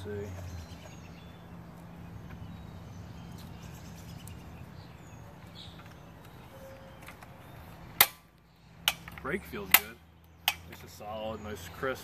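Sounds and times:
faint bird chirps: 0.1s - 7.8s.

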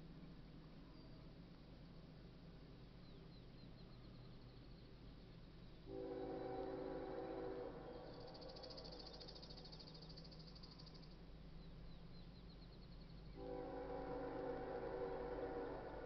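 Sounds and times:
faint chirps: 3.0s - 13.5s
distant locomotive air horn: 5.9s - 8.5s, 13.4s - 16.0s.

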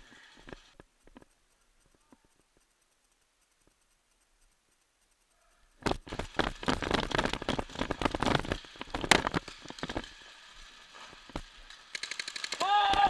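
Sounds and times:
paintball markers firing: 11.7s - 13.0s.

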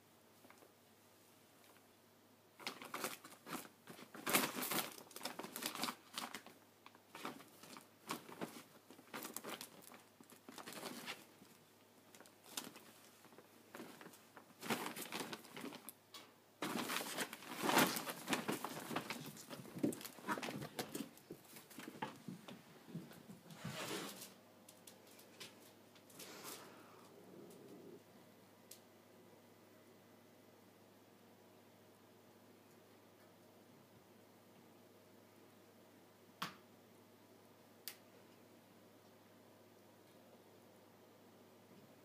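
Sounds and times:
gift bag crinkling and rustling: 2.6s - 16.0s, 16.6s - 22.3s.

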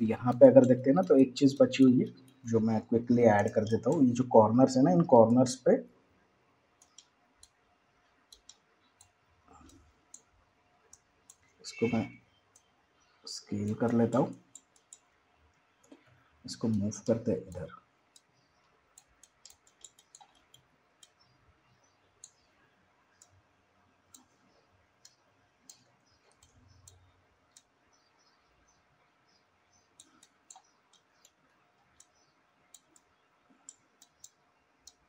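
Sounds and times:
computer mouse clicks: 6.8s - 7.6s, 8.3s - 10.3s, 10.9s - 12.7s, 13.5s - 15.1s, 15.8s - 21.3s, 24.1s - 27.8s, 30.0s - 35.0s.

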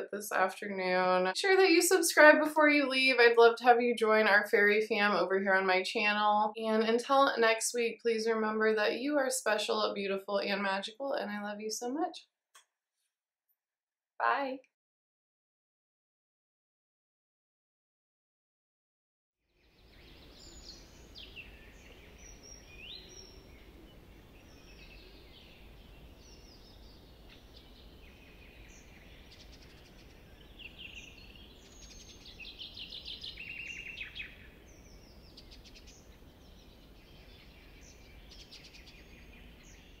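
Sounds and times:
birds chirping and singing: 19.7s - 40.0s.

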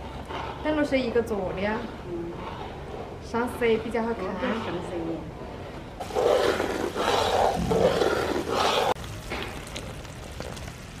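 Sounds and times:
syrup boiling and bubbling: 6.0s - 11.0s.

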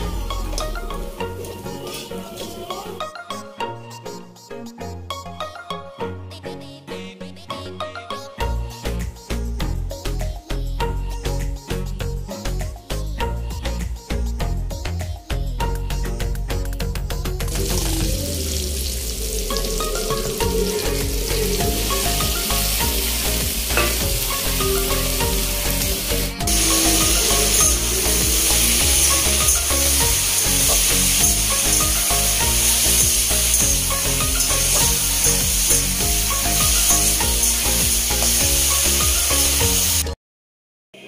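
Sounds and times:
vegetables sizzling in hot oil: 17.5s - 40.1s.

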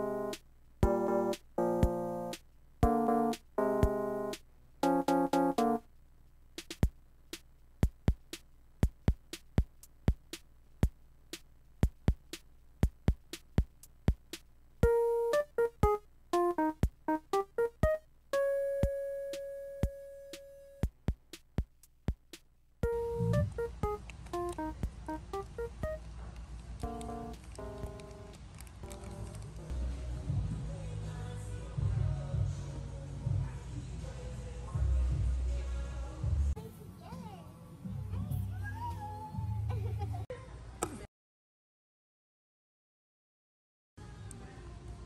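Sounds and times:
instrumental music: 0.0s - 5.9s, 6.6s - 11.0s, 11.8s - 30.5s
sharp clicking beat: 0.0s - 5.9s, 6.5s - 26.1s, 26.8s - 29.4s.

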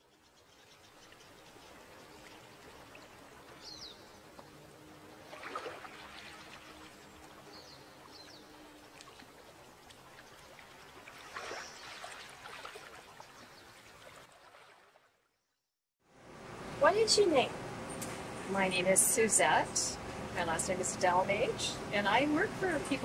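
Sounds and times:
wave washing: 5.2s - 7.0s
sea water lapping on rocks: 5.2s - 7.4s.

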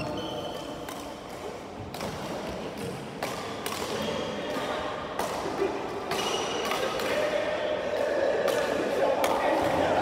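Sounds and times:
rackets hitting shuttlecock: 0.5s - 7.4s.

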